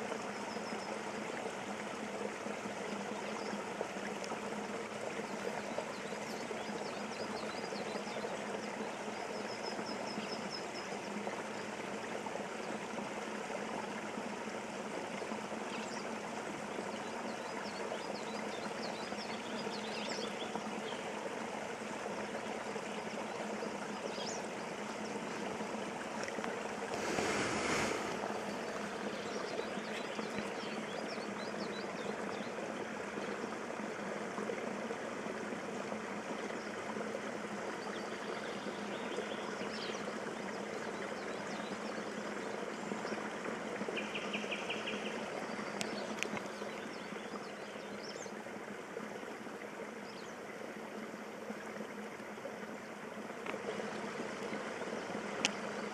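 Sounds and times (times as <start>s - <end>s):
water running and trickling: 0.0s - 55.9s
rush of noise: 27.0s - 28.3s.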